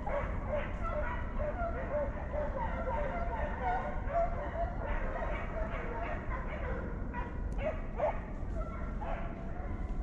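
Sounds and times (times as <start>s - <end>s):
hounds baying: 0.0s - 9.8s.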